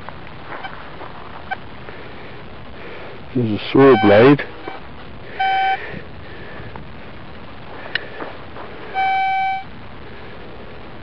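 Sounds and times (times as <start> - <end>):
metal detector beeps: 3.8 - 4.8, 5.4 - 5.8, 8.9 - 9.7.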